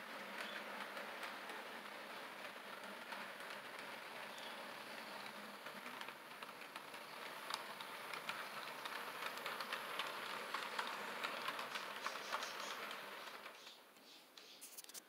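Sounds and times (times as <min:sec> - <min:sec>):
model train wheels whirring: 0:00.0 - 0:14.6
small irregular clicks: 0:00.0 - 0:15.0.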